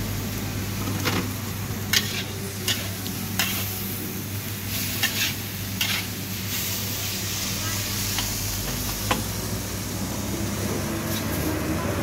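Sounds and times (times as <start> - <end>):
noodles sizzling: 0.0 - 12.0
metal spatula scraping wok: 1.8 - 4.0, 4.6 - 8.4.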